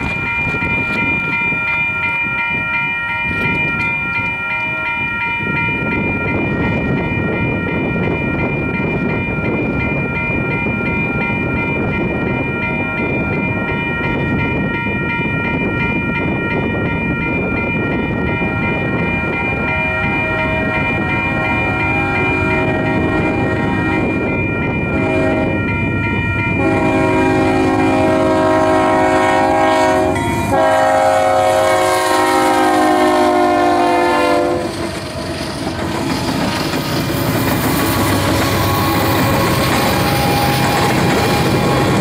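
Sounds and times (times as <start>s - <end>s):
low rumble of train: 0.0s - 42.0s
train air horn chord: 19.9s - 24.1s, 24.9s - 25.6s, 26.6s - 34.7s.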